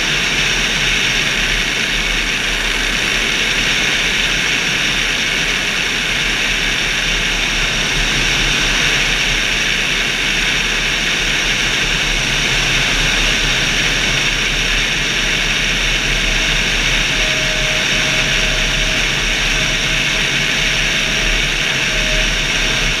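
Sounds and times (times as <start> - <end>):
rush of airflow wind noise: 0.0 - 23.0.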